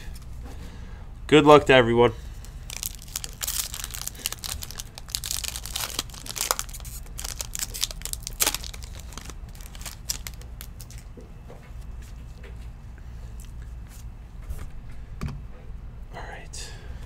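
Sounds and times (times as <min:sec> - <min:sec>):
card pack wrappers tearing and crinkling: 0:02.4 - 0:11.1
cards rustling: 0:02.4 - 0:11.1.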